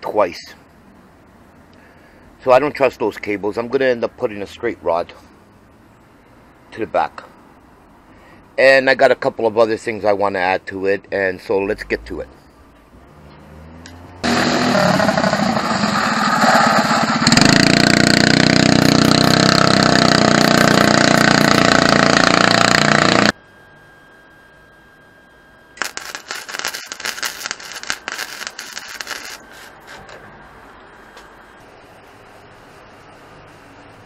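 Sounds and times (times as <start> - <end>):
go-kart engine running: 14.2 - 23.3
electric welding arc crackling: 17.2 - 23.3, 25.8 - 30.2.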